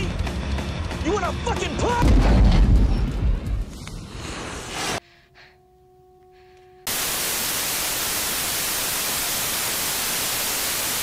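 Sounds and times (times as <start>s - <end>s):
tv static hiss: 6.9s - 11.0s.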